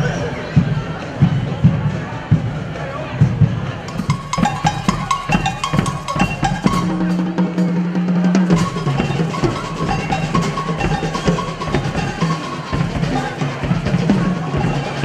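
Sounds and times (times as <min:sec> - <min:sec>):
snare and bass drums: 0:00.6 - 0:15.0
bell lyres ringing melody: 0:03.9 - 0:07.9, 0:08.5 - 0:15.0.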